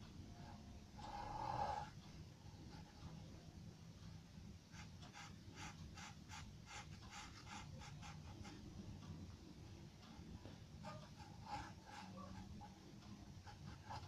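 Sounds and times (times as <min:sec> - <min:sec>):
low steady hum: 0:00.0 - 0:14.0
pencil scratching on paper: 0:01.0 - 0:02.0, 0:04.7 - 0:08.8, 0:10.8 - 0:14.0.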